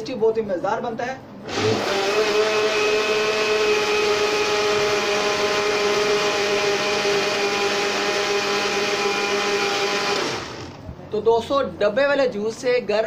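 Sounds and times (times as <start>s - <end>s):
blender running: 1.4s - 10.8s.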